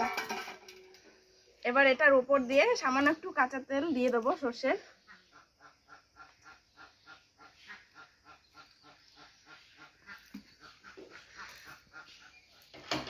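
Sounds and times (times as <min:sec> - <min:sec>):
faint bird calls: 0:04.8 - 0:12.9.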